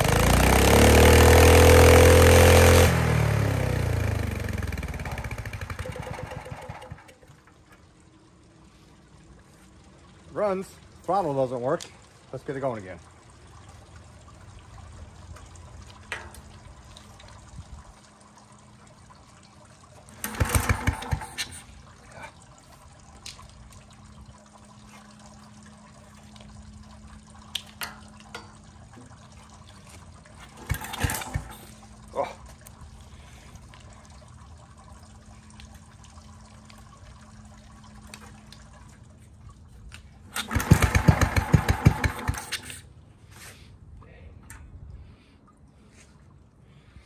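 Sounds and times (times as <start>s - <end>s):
small engine running in pulses: 0.0s - 7.4s, 20.1s - 22.3s, 30.4s - 32.4s, 40.3s - 42.9s
engine rope-starting: 0.0s - 7.7s, 20.1s - 21.7s, 30.4s - 32.3s, 40.3s - 43.5s.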